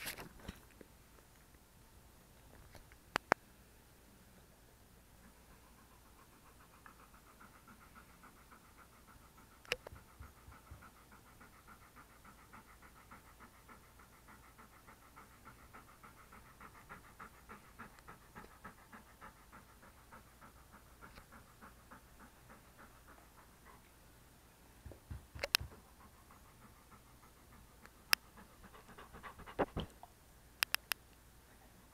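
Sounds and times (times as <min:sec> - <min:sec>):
dog panting: 0:05.2 - 0:24.1, 0:24.8 - 0:30.0
sharp click: 0:25.4 - 0:25.7.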